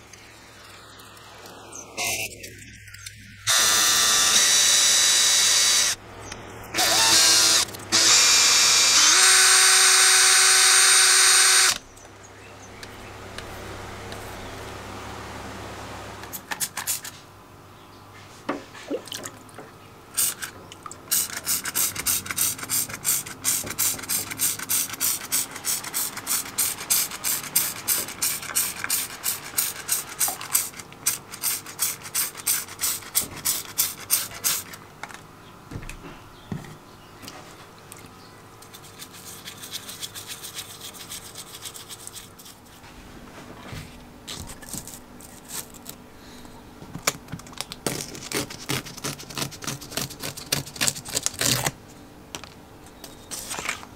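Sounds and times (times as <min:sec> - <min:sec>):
cordless drill whirring: 0:03.5 - 0:06.0, 0:06.8 - 0:11.8
spray bottle squirting: 0:21.1 - 0:34.6.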